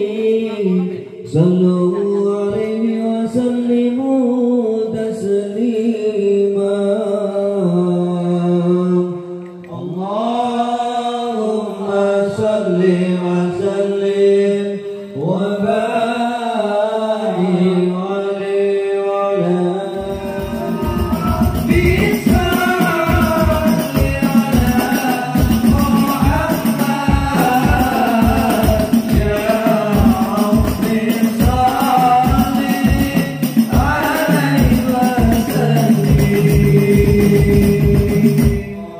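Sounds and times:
person singing devotional lines: 0.0s - 38.9s
fast percussion beat: 19.9s - 38.8s.

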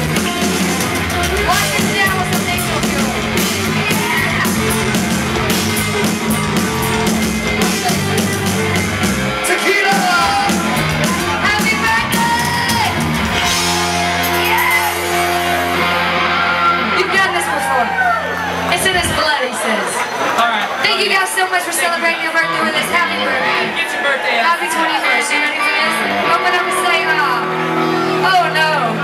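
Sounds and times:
live rock band playing: 0.0s - 20.2s, 24.6s - 29.0s
person singing: 9.4s - 13.0s.

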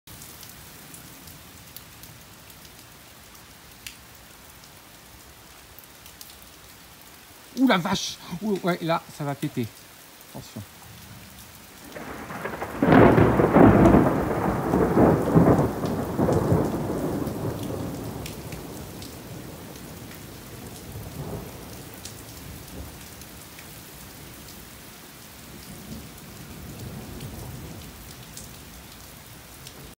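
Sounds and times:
steady rain: 0.1s - 30.0s
thunder crack and rumbling: 11.8s - 20.0s.

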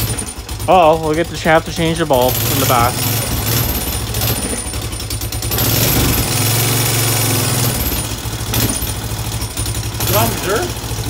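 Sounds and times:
engine idling: 0.0s - 11.0s.

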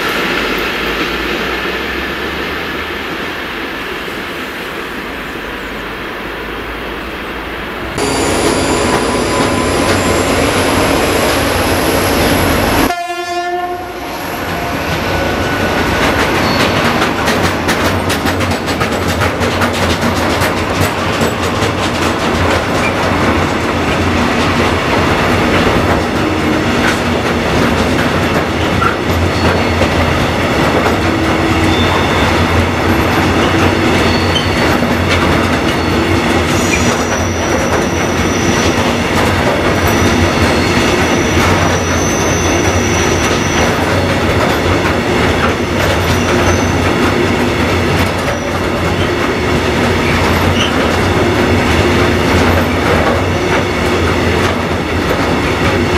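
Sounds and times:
high wheel squeal: 8.0s - 12.9s, 14.0s - 17.0s, 31.2s - 39.1s, 39.8s - 44.0s, 46.0s - 46.9s, 50.0s - 50.8s
train wheels clattering on rails: 8.0s - 13.0s, 14.4s - 55.9s.

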